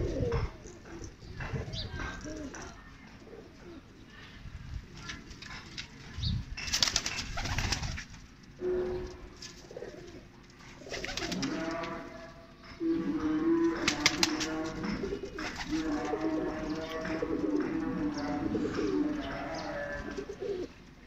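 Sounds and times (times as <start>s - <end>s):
pigeons cooing: 0.0s - 4.3s, 8.5s - 21.0s.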